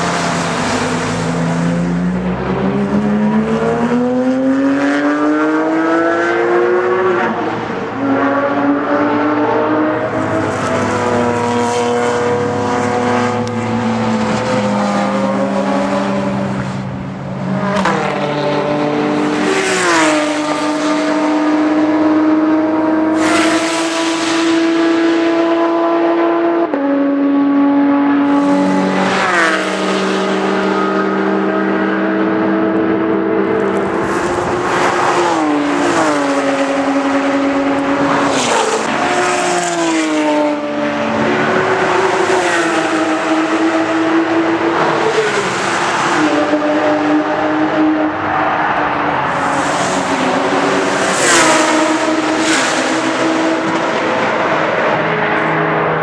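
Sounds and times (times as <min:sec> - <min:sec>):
race cars passing at high revs: 0:00.0 - 0:56.0.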